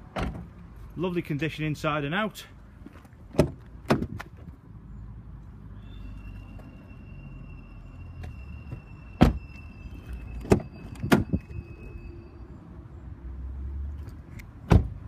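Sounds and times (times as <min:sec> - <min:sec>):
car door shutting: 0:08.7 - 0:09.6, 0:14.6 - 0:15.0.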